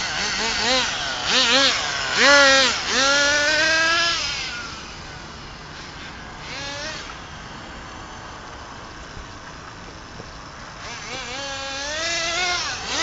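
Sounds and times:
small engine at full throttle: 0:00.0 - 0:13.0.

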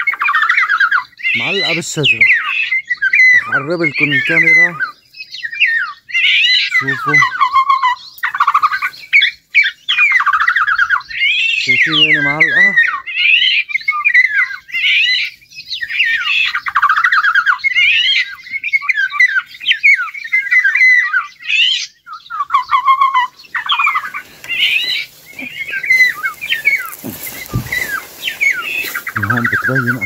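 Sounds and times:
bird whistling and chattering: 0:00.0 - 0:30.0
harsh rasping bird calls: 0:00.0 - 0:30.0.

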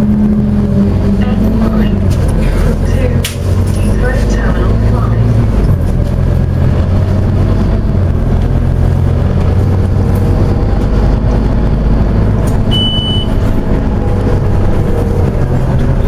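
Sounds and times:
bus engine running: 0:00.0 - 0:16.0
road noise: 0:00.0 - 0:16.0
short high beep: 0:12.7 - 0:13.4.

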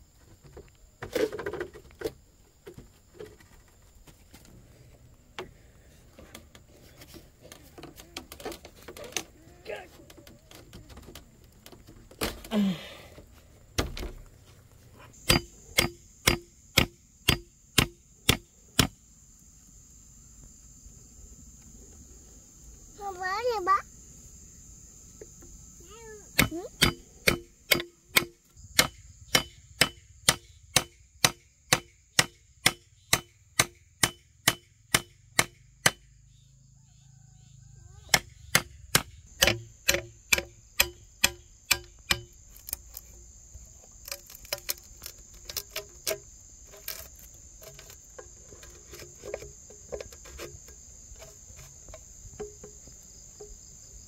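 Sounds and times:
high insect drone: 0:00.0 - 0:54.0
hand tool striking wood: 0:15.2 - 0:19.0, 0:26.4 - 0:36.1, 0:38.1 - 0:43.2, 0:44.1 - 0:53.6.

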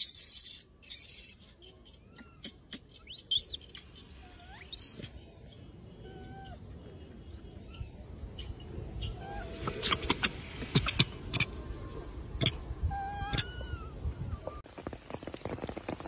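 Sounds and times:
macaque squealing: 0:00.0 - 0:01.5, 0:02.1 - 0:05.2, 0:12.4 - 0:13.9.

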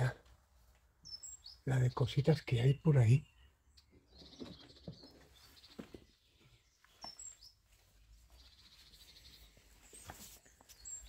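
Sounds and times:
faint bird chirping: 0:00.0 - 0:11.0.

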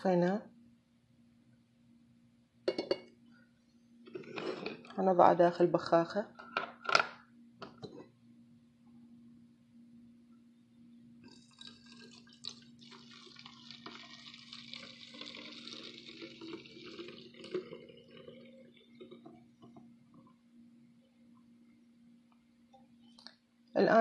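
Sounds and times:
liquid trickling into bottle: 0:11.3 - 0:19.6.

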